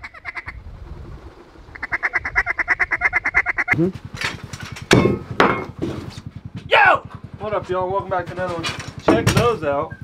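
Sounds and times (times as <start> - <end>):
duck quacking: 1.7 - 3.8
sharp knocks: 4.1 - 7.2, 8.3 - 9.6.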